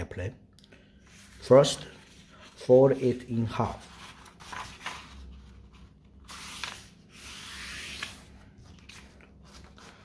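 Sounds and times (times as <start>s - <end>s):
hands rubbing paper: 3.6s - 10.0s.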